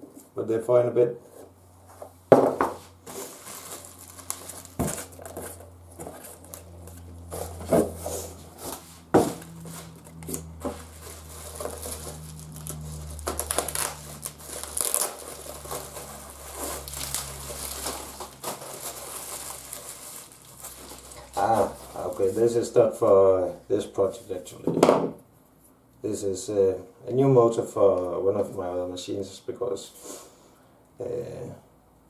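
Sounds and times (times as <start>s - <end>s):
bubble wrap crinkling: 3.0s - 22.6s.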